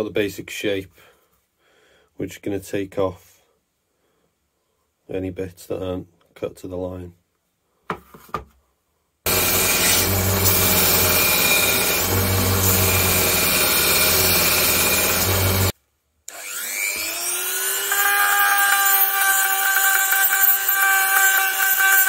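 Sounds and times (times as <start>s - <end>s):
belt sander grinding wood: 9.3s - 15.7s, 16.3s - 22.0s
rotary tool whining: 9.3s - 15.7s, 16.3s - 22.0s.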